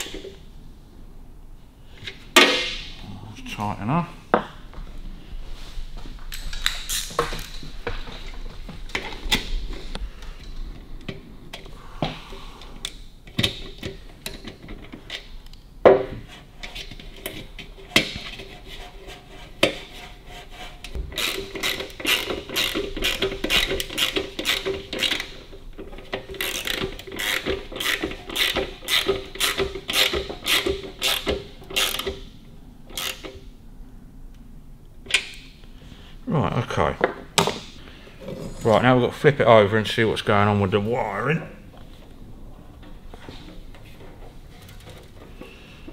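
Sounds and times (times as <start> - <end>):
ratchet spanner clicking: 21.2 - 25.3, 26.3 - 32.2, 32.9 - 33.4.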